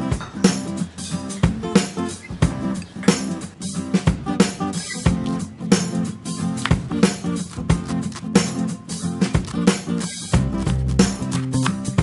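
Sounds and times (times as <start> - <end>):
upbeat guitar and drums tune: 0.0 - 12.0
low bass notes: 10.4 - 12.0.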